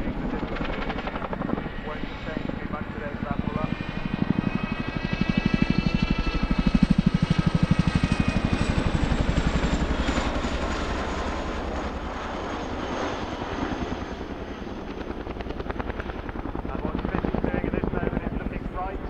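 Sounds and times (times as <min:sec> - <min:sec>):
helicopter rotors chopping: 0:00.0 - 0:19.0
high helicopter whine: 0:00.0 - 0:19.0.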